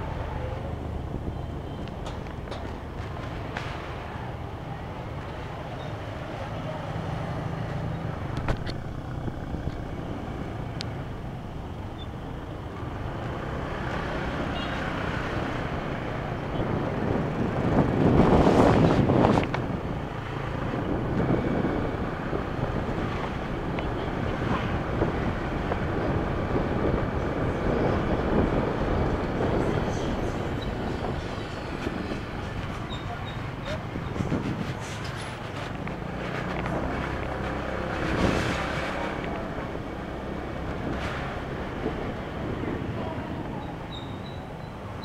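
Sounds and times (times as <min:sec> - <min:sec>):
surrounding traffic: 0:00.0 - 0:45.0
motorbike running: 0:07.1 - 0:43.6
wind on microphone: 0:15.6 - 0:44.8.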